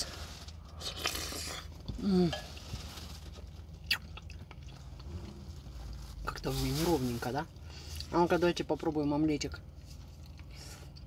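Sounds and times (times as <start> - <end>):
person slurping and chewing: 0.8 - 1.7.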